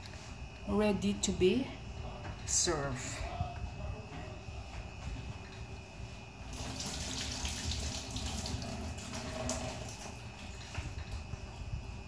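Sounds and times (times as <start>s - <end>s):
water running: 6.4s - 10.7s.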